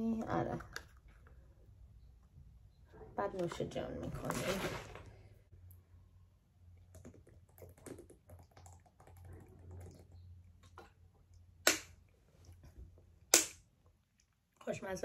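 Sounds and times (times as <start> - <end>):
plastic bottle crackling: 3.4 - 5.3.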